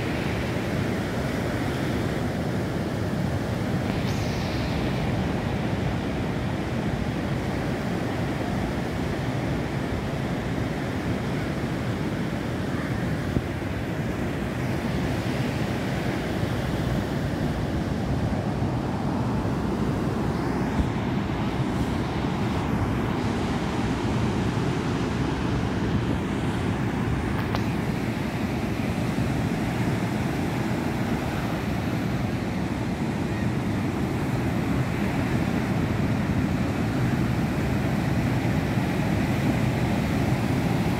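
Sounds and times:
surf breaking on beach: 0.0 - 40.9
wind on microphone: 0.0 - 40.9.

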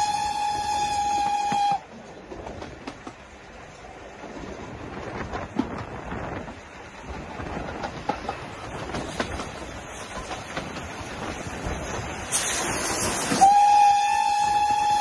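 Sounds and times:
steam whistle: 0.0 - 1.9, 13.2 - 15.0
rail joint clicks: 0.0 - 15.0
steam train running: 0.0 - 15.0
steam hissing: 7.2 - 15.0.

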